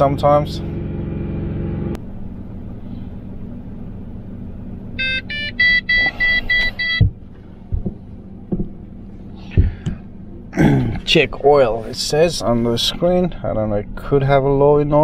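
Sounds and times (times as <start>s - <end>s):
engine idling: 0.0s - 15.0s
short electronic warning beeps: 5.0s - 7.1s
short knocks: 6.9s - 10.1s.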